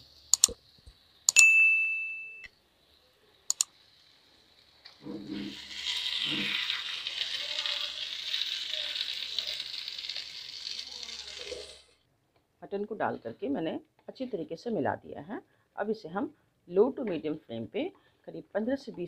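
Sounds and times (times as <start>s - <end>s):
ringing chime: 1.3s - 2.5s
meat sizzling in oil: 2.8s - 12.0s.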